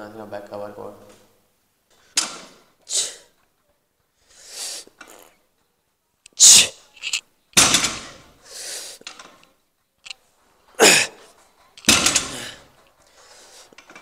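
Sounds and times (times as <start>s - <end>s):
soft hissing breaths: 1.8s - 3.4s, 4.1s - 5.4s, 6.3s - 7.2s, 7.9s - 9.2s, 12.1s - 14.0s
forceful exhalations and grunts: 6.3s - 7.2s, 10.7s - 13.7s.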